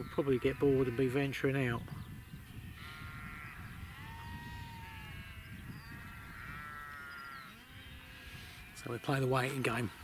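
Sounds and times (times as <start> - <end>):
sheep bleating: 2.6 - 7.1.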